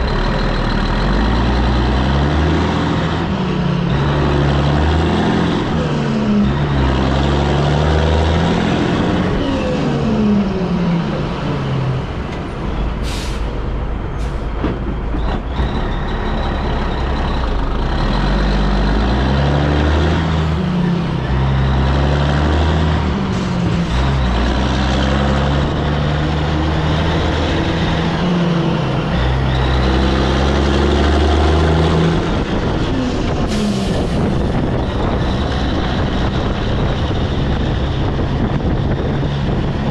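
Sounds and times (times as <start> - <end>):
diesel truck engine: 0.0 - 39.9
air brake hiss: 13.0 - 13.6, 14.2 - 14.6.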